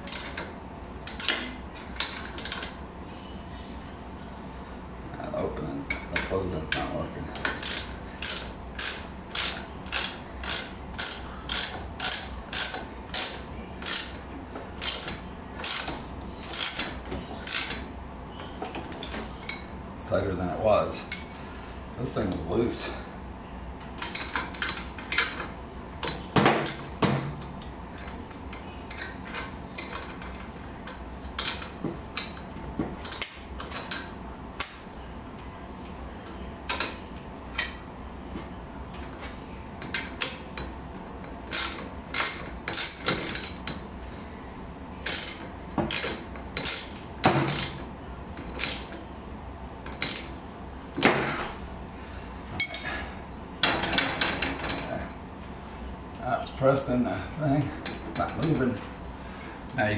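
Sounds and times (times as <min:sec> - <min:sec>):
steady low hum: 0:00.0 - 0:59.9
tools clinking on metal: 0:52.6 - 0:53.0.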